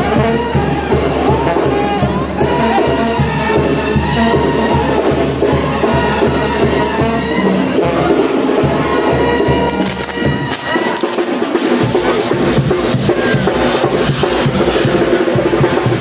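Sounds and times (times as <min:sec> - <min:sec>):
brass band playing with drums: 0:00.0 - 0:16.0
fireworks crackling and popping: 0:08.3 - 0:16.0.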